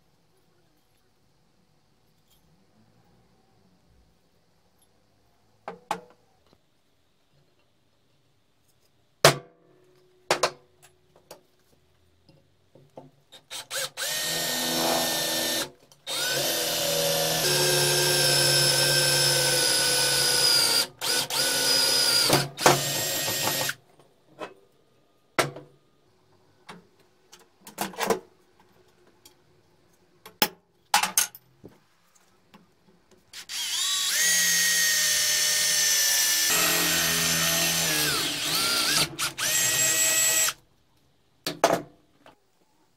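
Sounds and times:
cordless drill boring into metal: 13.5 - 23.8, 33.4 - 40.6.

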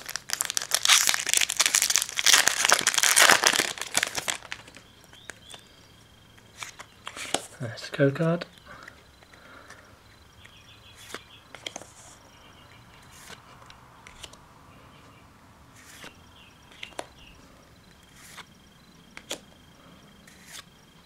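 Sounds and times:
faint high chirping: 3.2 - 13.3
cards sliding and tapping: 6.6 - 7.5, 10.4 - 12.2, 13.0 - 14.4, 15.8 - 17.1, 18.1 - 18.5, 19.2 - 19.4, 20.3 - 20.7.

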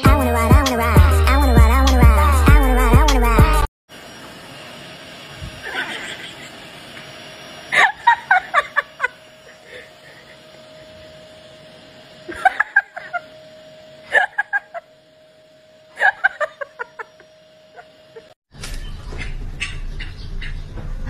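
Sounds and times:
person laughing: 5.6 - 6.7, 7.7 - 10.4, 12.3 - 13.3, 14.1 - 14.9, 16.0 - 18.3.

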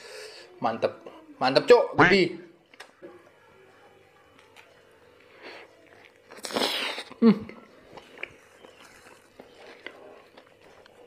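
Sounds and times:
man chewing food: 2.6 - 11.0.

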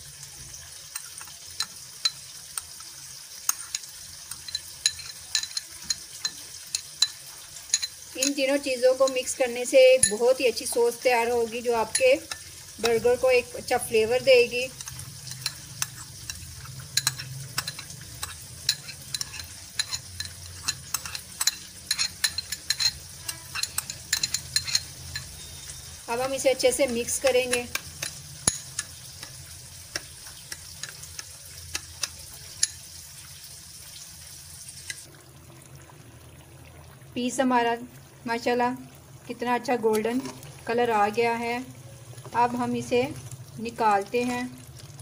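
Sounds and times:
metal spoon scraping bowl: 3.5 - 32.8, 39.9 - 40.5.

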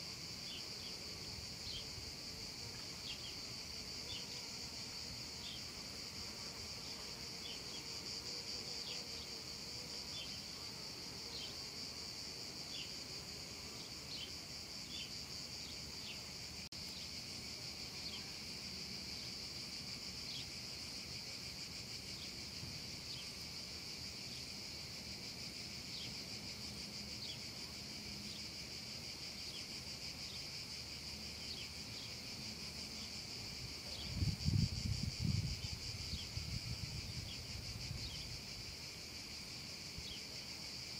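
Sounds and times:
cicadas buzzing: 0.0 - 40.9.

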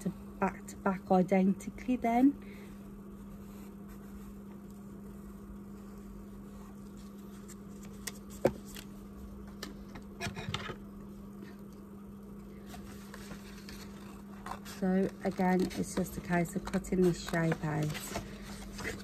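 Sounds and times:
steady low hum: 0.0 - 19.0
paper rustling: 12.6 - 19.0.

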